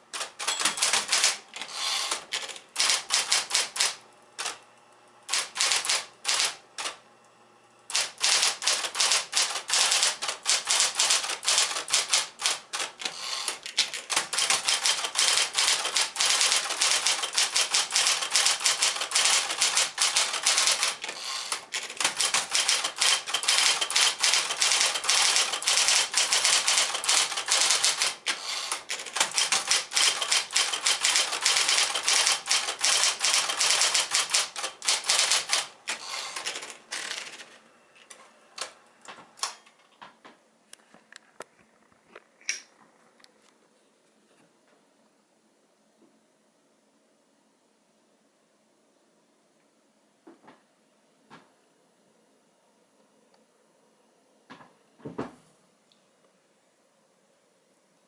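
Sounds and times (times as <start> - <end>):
typewriter typing: 0.1 - 4.6, 5.3 - 7.0, 7.9 - 37.6.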